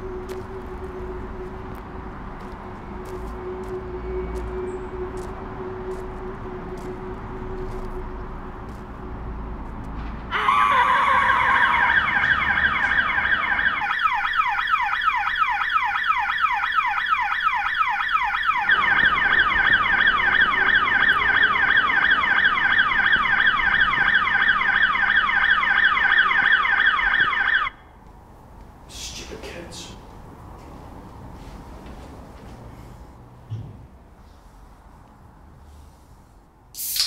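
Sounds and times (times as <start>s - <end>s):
electronic alarm siren: 0.0s - 8.4s, 10.3s - 27.8s.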